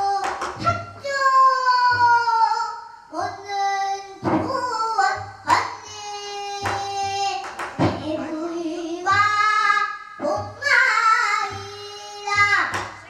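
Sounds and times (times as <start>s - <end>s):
girl singing held wavering notes: 1.0s - 13.0s
barrel drum strokes: 3.2s - 13.0s.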